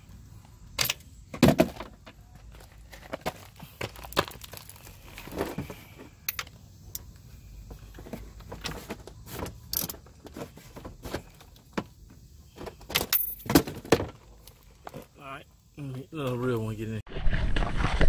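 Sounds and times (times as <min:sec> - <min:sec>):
hand tools clicking and clinking: 0:06.2 - 0:07.1, 0:12.9 - 0:13.6.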